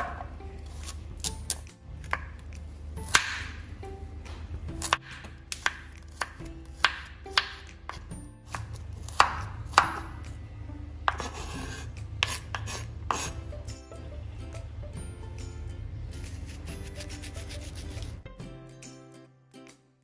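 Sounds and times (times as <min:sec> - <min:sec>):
knife chopping carrot on board: 0:00.0 - 0:03.6, 0:04.3 - 0:10.3, 0:11.0 - 0:13.4.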